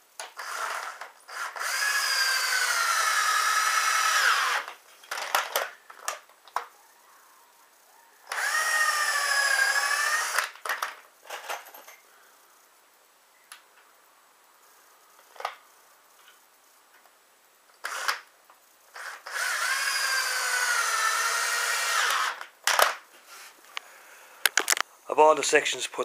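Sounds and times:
cordless drill motor whine: 0:00.3 - 0:05.4, 0:08.2 - 0:10.6, 0:17.8 - 0:18.3, 0:18.9 - 0:22.5.

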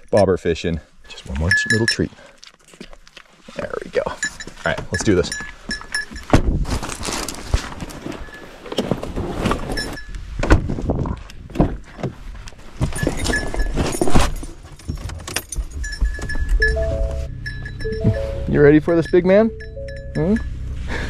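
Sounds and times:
goat hooves knocking on truck: 0:14.8 - 0:18.5.

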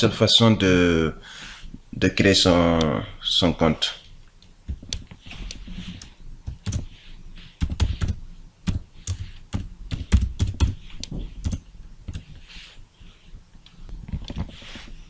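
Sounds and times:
computer keyboard typing: 0:04.7 - 0:06.9, 0:07.6 - 0:12.4.

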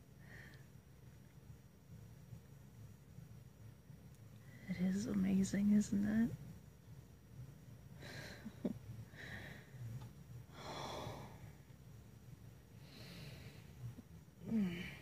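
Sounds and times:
woman breathing softly: 0:00.0 - 0:00.9, 0:07.9 - 0:11.8, 0:12.7 - 0:15.0.

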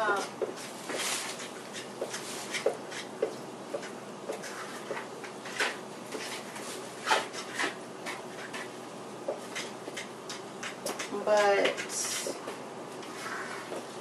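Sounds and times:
spoon scraping plastic cup: 0:11.7 - 0:12.4.

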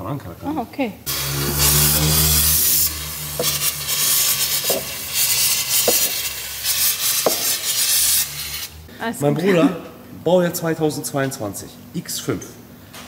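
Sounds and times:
low hum: 0:01.1 - 0:05.7
aerosol spray can hissing: 0:01.1 - 0:08.8.

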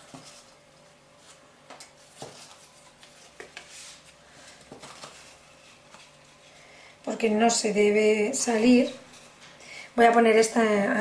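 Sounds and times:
paper rustling: 0:01.2 - 0:06.5.

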